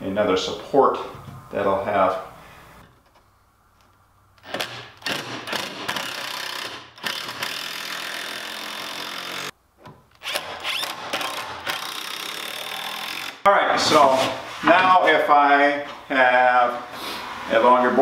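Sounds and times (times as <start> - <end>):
cordless drill driving screws: 4.4 - 9.5, 10.1 - 13.4.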